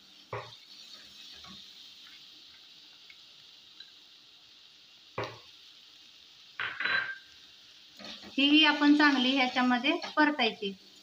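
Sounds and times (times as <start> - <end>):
onions frying in oil: 0.0 - 11.0.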